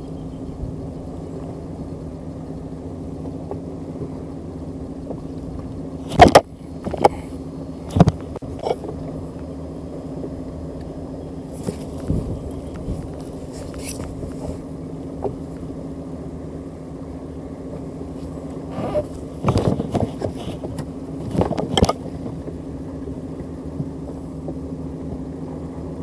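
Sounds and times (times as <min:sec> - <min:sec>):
boat engine humming: 0:00.0 - 0:26.0.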